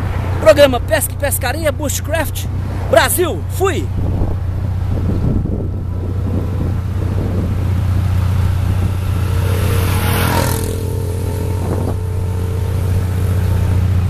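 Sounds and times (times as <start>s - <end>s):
steady low traffic hum: 0.0s - 14.0s
vehicle passing close by: 3.9s - 14.0s.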